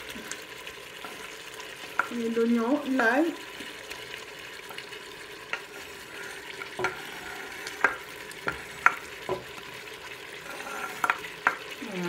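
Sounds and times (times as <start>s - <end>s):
meat sizzling in a pot: 0.0s - 12.0s
board and utensil taps: 6.8s - 7.0s, 7.7s - 9.6s, 11.0s - 11.7s
food scraped off cutting board: 10.4s - 11.2s.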